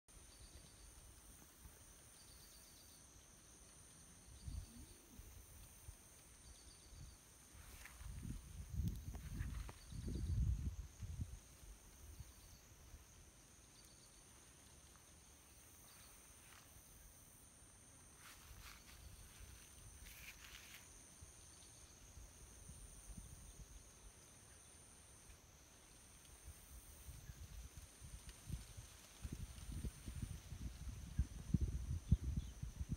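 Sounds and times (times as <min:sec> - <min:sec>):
insect chirps: 0:00.1 - 0:32.9.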